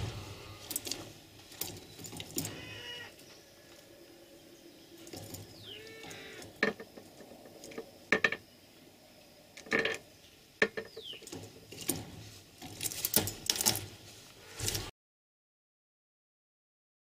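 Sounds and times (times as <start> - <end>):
bird scuffling: 0.0 - 4.0, 10.9 - 14.9
sharp clicks and knocks: 5.0 - 8.4.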